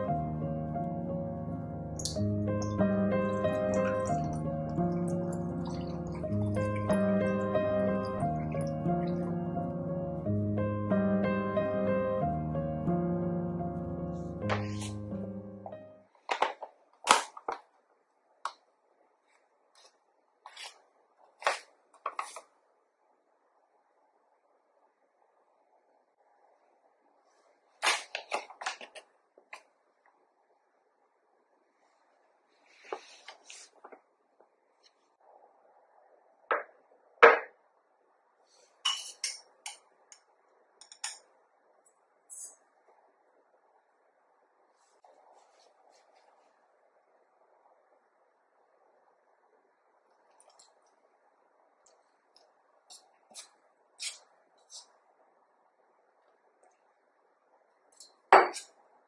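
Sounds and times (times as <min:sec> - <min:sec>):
soft rustle: 0:31.8 - 0:34.0, 0:44.7 - 0:46.8.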